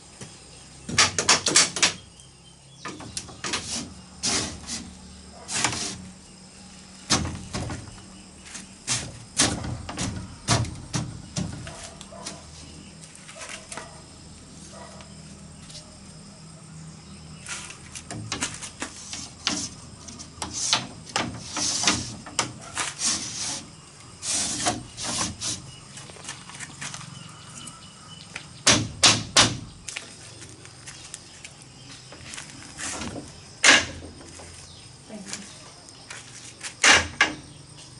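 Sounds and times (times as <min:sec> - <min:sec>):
bamboo poles knocking: 0:00.2 - 0:02.0, 0:07.1 - 0:08.0, 0:08.8 - 0:12.4, 0:20.4 - 0:22.6, 0:28.6 - 0:29.7, 0:33.0 - 0:34.3.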